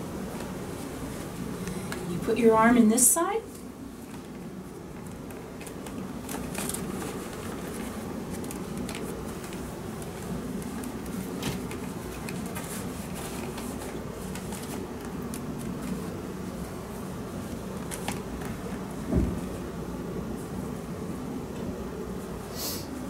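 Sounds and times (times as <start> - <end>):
small crackles and clicks: 3.5 - 16.1
cloth rustling: 4.0 - 20.9.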